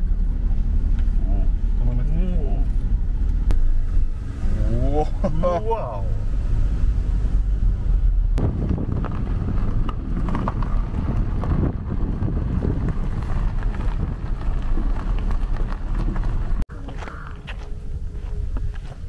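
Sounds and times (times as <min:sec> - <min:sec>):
car driving slowly: 0:00.0 - 0:19.0
wind rumbling on microphone: 0:06.0 - 0:19.0.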